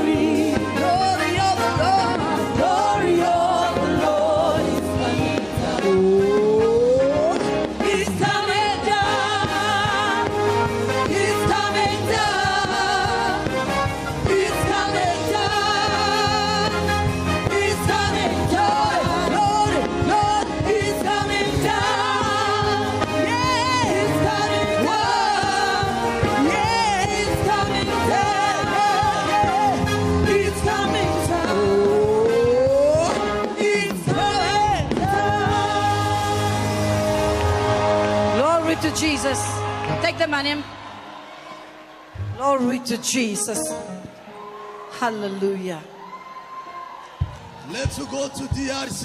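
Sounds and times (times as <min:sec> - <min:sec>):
gospel singing voices: 0:00.0 - 0:40.0.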